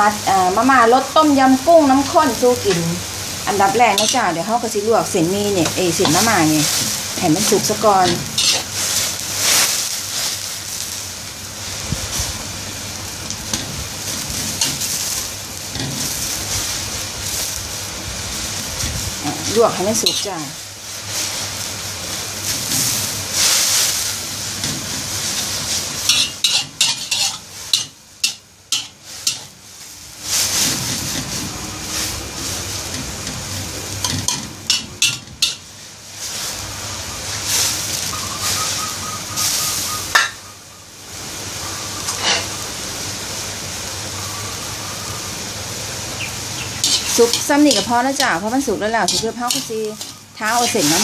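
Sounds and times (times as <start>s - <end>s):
metal spatula scraping wok: 3.5s - 10.4s, 13.4s - 17.6s, 19.2s - 29.6s, 30.2s - 36.7s, 42.0s - 42.6s, 46.6s - 51.0s.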